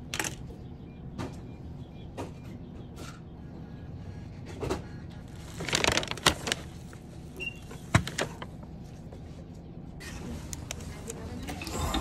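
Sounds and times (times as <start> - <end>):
paper bag rustling and crinkling: 5.3 - 7.0.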